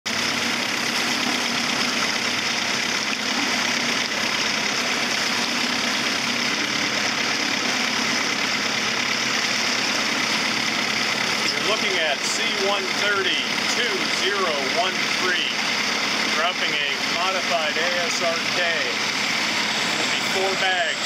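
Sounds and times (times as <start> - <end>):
boat engine idling: 0.0 - 21.0.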